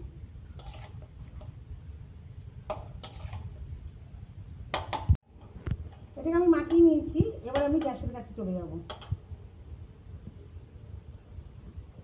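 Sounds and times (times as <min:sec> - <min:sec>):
spatula scraping in bowl: 0:00.5 - 0:01.6, 0:02.7 - 0:03.6.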